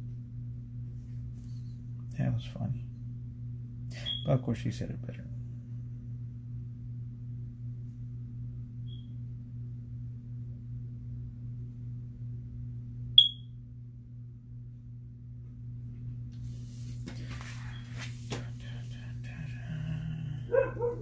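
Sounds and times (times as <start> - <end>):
low electrical hum: 0.0 - 21.0
high electronic chirp: 13.2 - 13.4.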